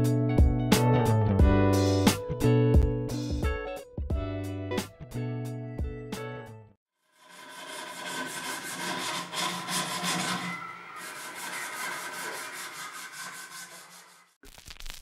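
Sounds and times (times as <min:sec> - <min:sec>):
hand tool scraping knife handle: 0:07.3 - 0:14.3.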